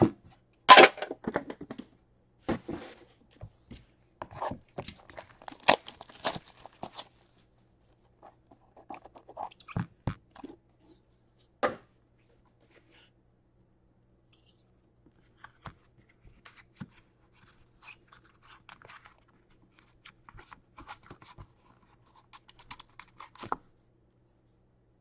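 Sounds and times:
packaging crinkling and tearing: 4.8 - 7.4.

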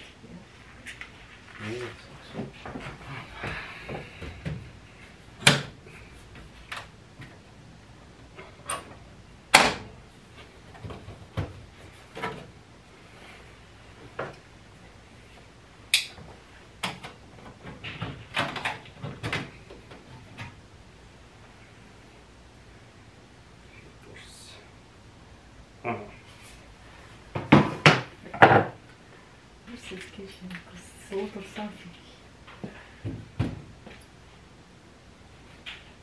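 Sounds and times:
knocks on furnace cabinet: 33.0 - 33.7.

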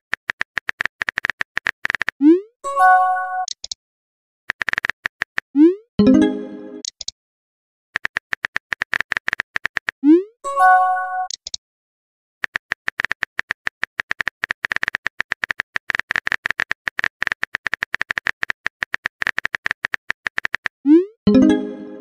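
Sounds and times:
phone keyboard clicks: 0.1 - 2.2, 3.4 - 3.8, 4.5 - 5.4, 8.0 - 10.0, 11.3 - 11.6, 12.4 - 20.7.

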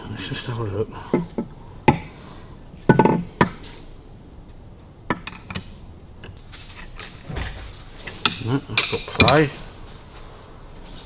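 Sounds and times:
steel parts clinking: 7.3 - 9.6.

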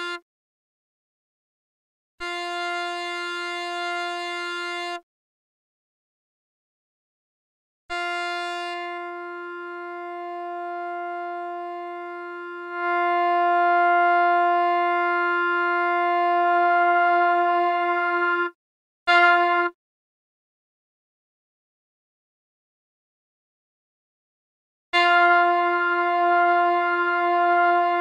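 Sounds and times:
synthesizer held note: 8.6 - 18.6.

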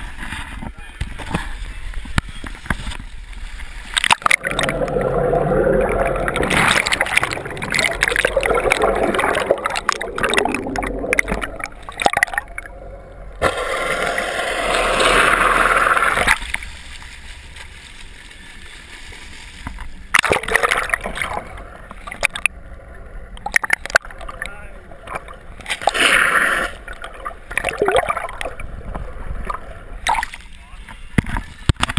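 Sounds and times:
seawater splashing and rushing: 3.6 - 17.9, 19.3 - 22.5, 23.4 - 30.5.

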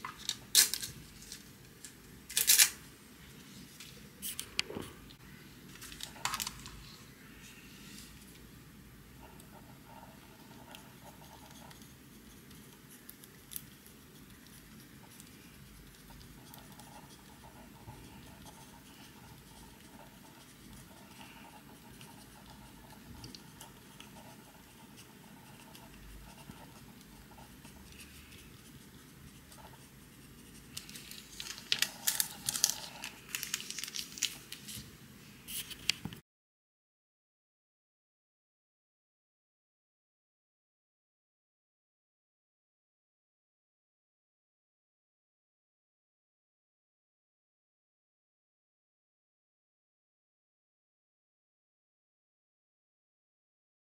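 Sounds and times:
paper crinkling and rustling: 5.7 - 7.0, 30.6 - 34.9
pencil scratching on paper: 9.2 - 30.8.

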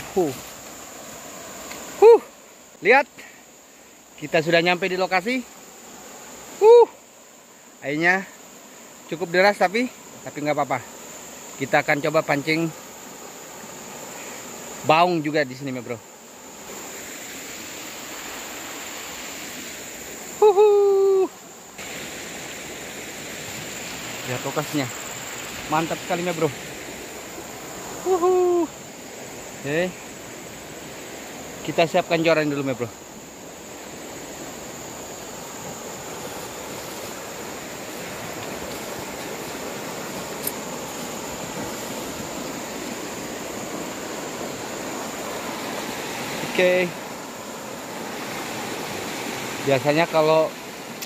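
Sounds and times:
fast-flowing river rushing: 0.0 - 51.0
man's held hooo call: 1.9 - 2.4, 6.5 - 7.1, 20.3 - 21.5, 27.8 - 28.9.

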